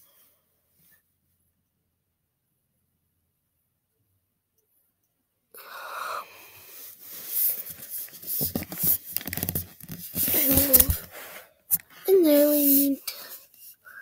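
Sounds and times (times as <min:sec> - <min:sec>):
close breathy noise: 0:00.0 - 0:01.1, 0:05.5 - 0:08.9, 0:10.2 - 0:14.0
rustling: 0:06.7 - 0:12.9.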